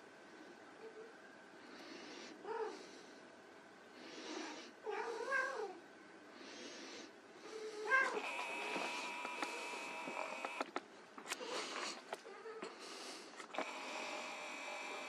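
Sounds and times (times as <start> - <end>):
kitten mewing: 7.8 - 10.7.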